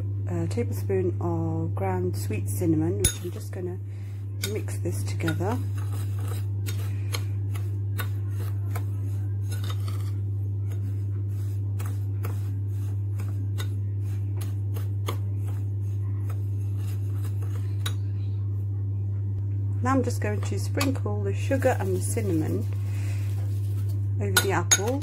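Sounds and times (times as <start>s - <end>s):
steady low hum: 0.0s - 25.0s
metal spoon scraping ceramic bowl: 3.0s - 3.5s, 4.4s - 10.9s, 16.2s - 18.1s.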